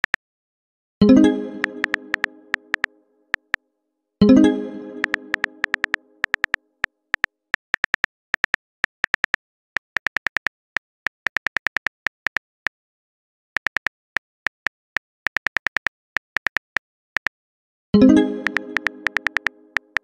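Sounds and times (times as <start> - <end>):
phone keyboard typing clicks: 1.6 - 3.6, 5.0 - 10.5, 18.4 - 20.0.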